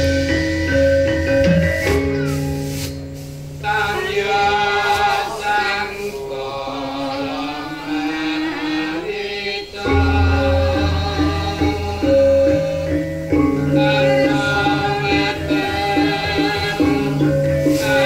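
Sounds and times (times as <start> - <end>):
metallophones and low sustained tones: 0.0 - 4.4, 9.8 - 18.0
gamelan music: 0.0 - 5.4, 7.2 - 18.0
chant-like singing: 3.6 - 18.0.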